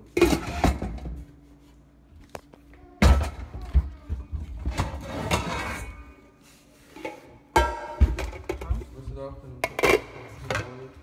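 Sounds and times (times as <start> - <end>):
metal pots clattering: 6.9 - 8.9, 9.6 - 11.0.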